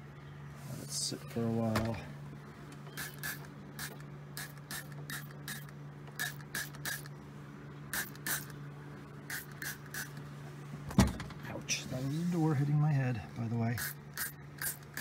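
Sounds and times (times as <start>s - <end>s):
low hum: 0.0s - 15.0s
spray bottle spritzing: 3.0s - 7.1s, 8.0s - 8.5s, 9.3s - 10.2s.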